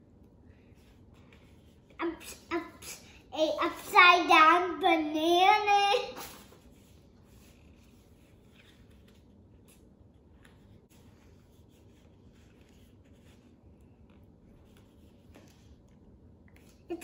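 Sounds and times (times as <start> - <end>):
paper stickers rustling and scraping: 6.3 - 16.9.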